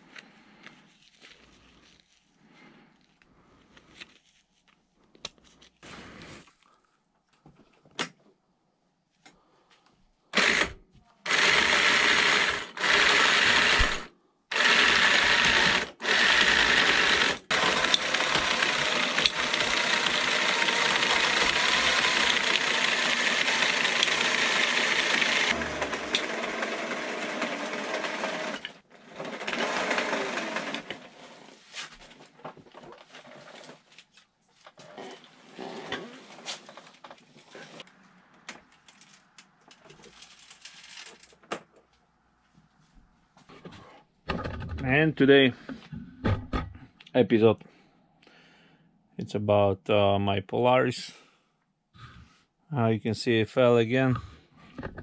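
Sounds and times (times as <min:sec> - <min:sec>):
power tool motor running: 0:10.4 - 0:31.2.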